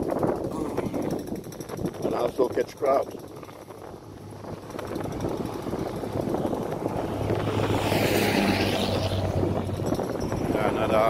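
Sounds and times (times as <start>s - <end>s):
low engine hum: 0.1s - 11.0s
car driving past: 6.0s - 10.1s.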